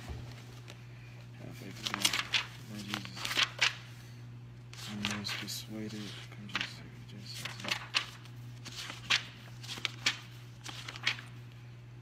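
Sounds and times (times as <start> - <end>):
steady low hum: 0.0 - 12.0
book pages flipping: 1.6 - 4.0, 4.7 - 11.4.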